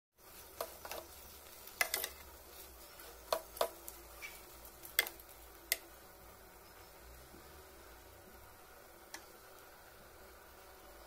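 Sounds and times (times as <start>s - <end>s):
spatula stirring rice in pan: 0.2s - 6.2s.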